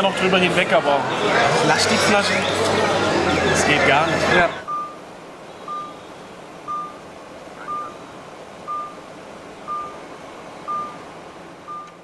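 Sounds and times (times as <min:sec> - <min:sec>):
moving car noise: 0:00.0 - 0:12.0
electronic warning beep: 0:04.6 - 0:05.0, 0:05.6 - 0:07.0, 0:07.6 - 0:08.0, 0:08.6 - 0:09.1, 0:09.7 - 0:10.0, 0:10.7 - 0:11.0, 0:11.7 - 0:12.0.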